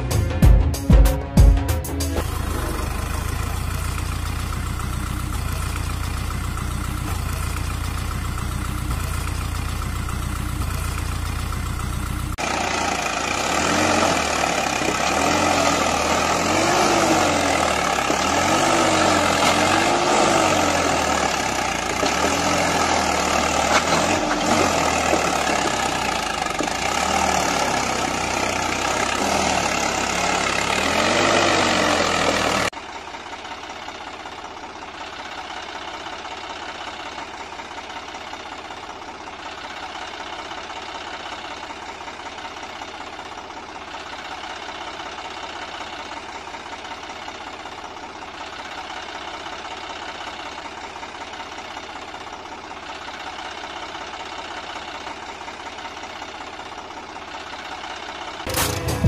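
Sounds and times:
tractor engine running: 0.0 - 59.0
engine revving under load: 2.2 - 9.4, 10.1 - 32.7.

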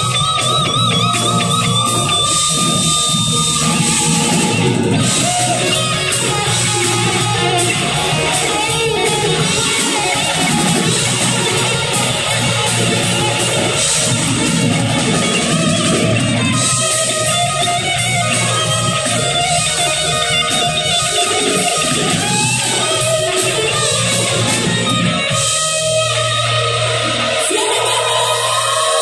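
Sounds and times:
bass guitar: 0.0 - 29.0
drum kit with cymbals: 0.0 - 29.0
electric guitar: 0.0 - 29.0.

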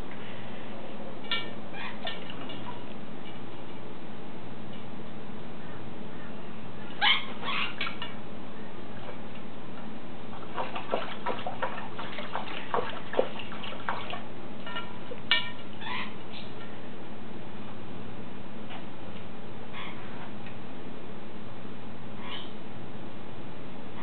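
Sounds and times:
parrot splashing in water: 10.3 - 15.6.

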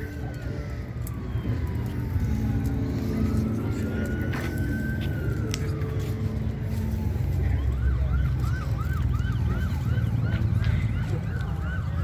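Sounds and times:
emergency siren wailing and yelping: 0.0 - 12.0.

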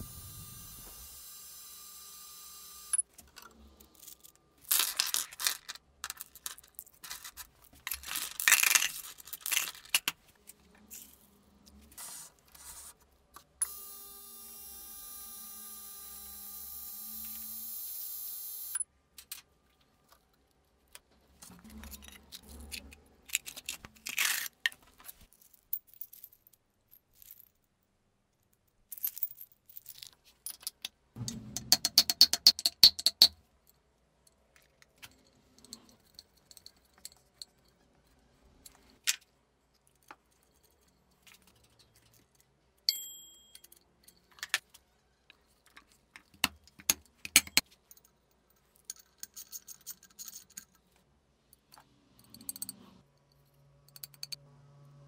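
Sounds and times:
metal parts clinking and rattling: 2.9 - 11.8, 21.4 - 27.6, 28.8 - 31.0, 34.5 - 39.3, 45.6 - 51.0.

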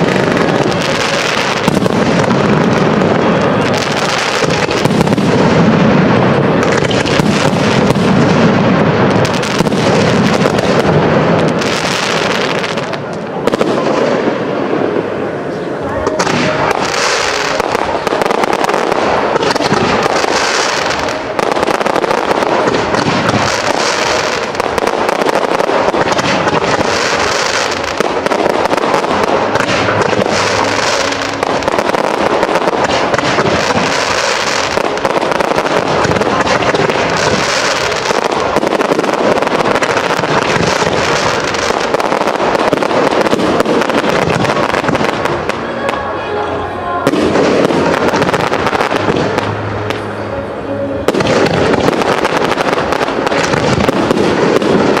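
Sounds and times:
fireworks bangs and crackling: 0.0 - 55.0.

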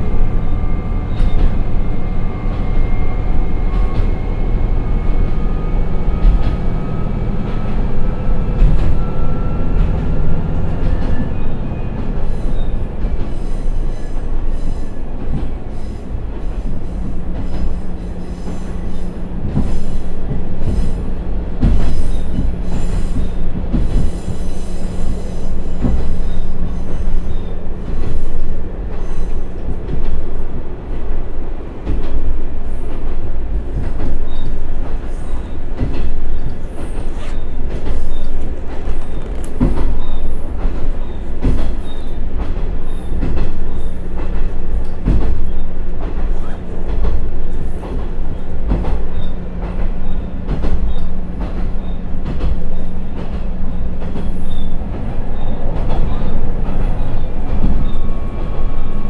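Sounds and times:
railcar engine rumble: 0.0 - 59.0
wheels knocking on track: 18.9 - 27.1, 37.6 - 58.2.

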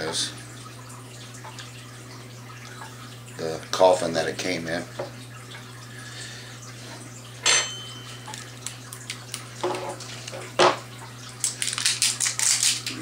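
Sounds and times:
glass bottle clink with ringing: 7.4 - 8.4
crackly handling sounds: 8.0 - 10.6, 11.2 - 13.0.

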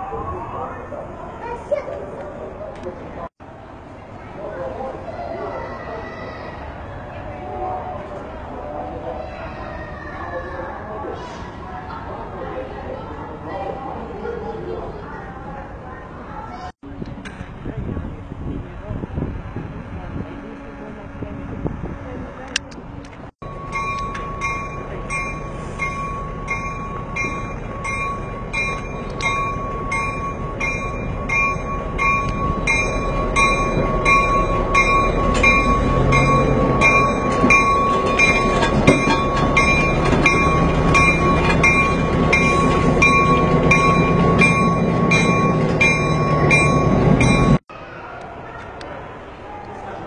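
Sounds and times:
diesel locomotive engine rumble: 0.0 - 50.0
locomotive bell ringing: 23.4 - 47.6.

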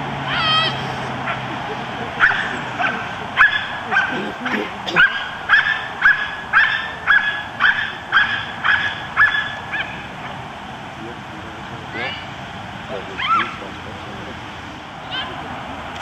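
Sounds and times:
dog barking: 1.2 - 10.0.

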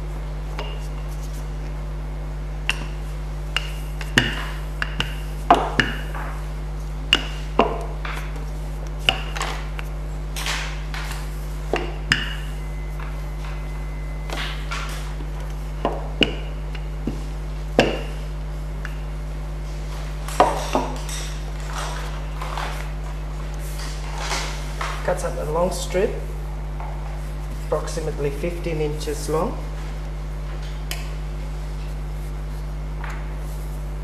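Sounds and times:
low electrical hum: 0.0 - 34.0
rolling pin on metal bench: 2.6 - 13.6.

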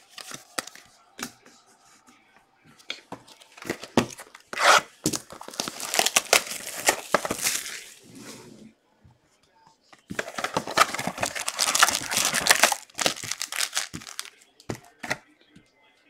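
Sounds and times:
card packaging tearing: 3.5 - 8.0, 10.1 - 15.2.

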